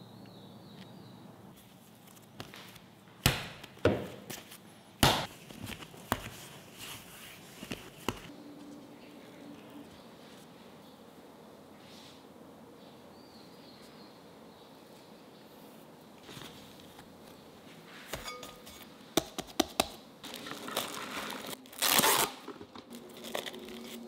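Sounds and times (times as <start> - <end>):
dough slapping on a wooden board: 5.0 - 6.4.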